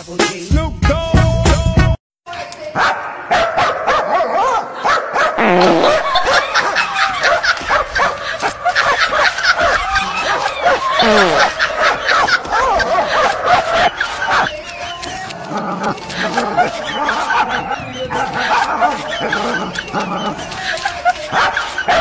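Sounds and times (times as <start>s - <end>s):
people laughing and giggling: 4.4s - 22.0s.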